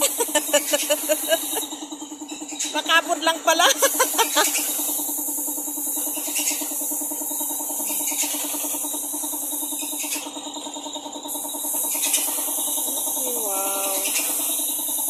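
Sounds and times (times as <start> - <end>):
paint spray gun hissing: 0.0 - 2.1, 2.8 - 15.0
air compressor pulsing hum: 0.0 - 15.0.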